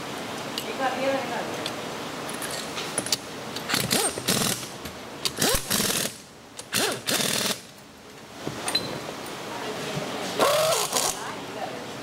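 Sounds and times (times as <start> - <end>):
pneumatic impact wrench hammering: 3.7 - 7.7.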